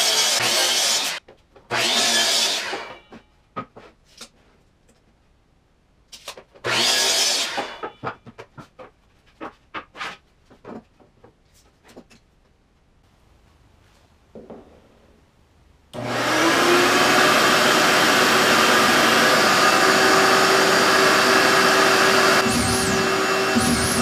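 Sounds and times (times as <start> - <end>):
miter saw cutting wood: 0.0 - 3.0, 6.6 - 7.9, 16.0 - 24.0
saw blade winding down: 16.0 - 24.0.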